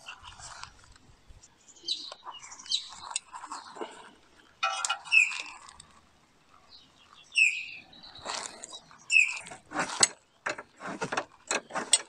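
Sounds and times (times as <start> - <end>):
spanner clinking on metal: 4.6 - 5.7
short bird calls: 6.7 - 9.6.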